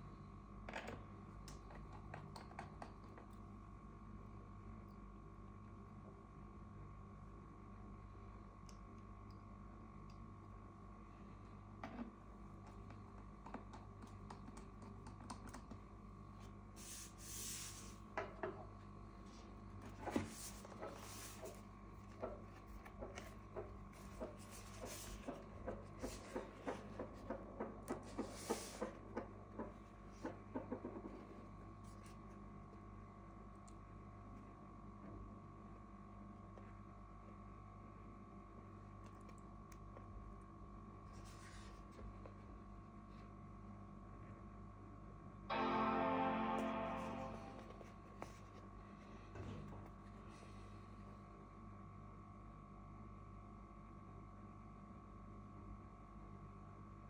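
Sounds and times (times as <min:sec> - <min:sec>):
small clicks and taps: 0:11.8 - 0:15.9.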